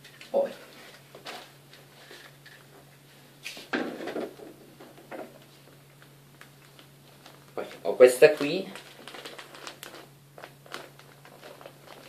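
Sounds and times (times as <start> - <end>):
plastic bag rustling: 5.3 - 12.0.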